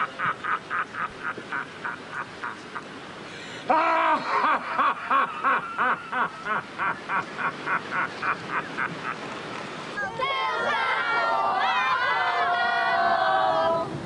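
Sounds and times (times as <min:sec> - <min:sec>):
person laughing: 0:03.7 - 0:09.2.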